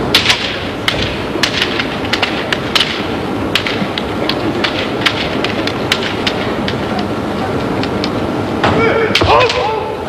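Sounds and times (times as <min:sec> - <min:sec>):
bamboo swords cracking: 0:00.1 - 0:06.8, 0:07.8 - 0:09.8.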